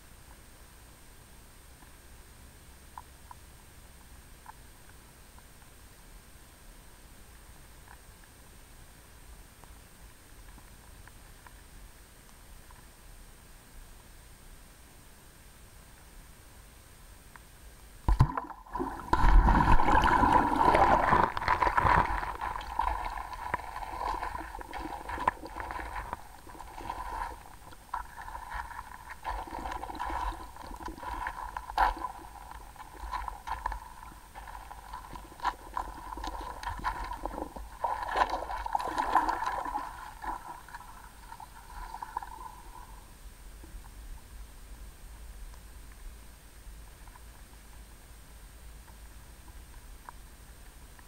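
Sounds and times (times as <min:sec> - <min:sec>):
muffled underwater gurgling water: 0:18.1 - 0:44.0.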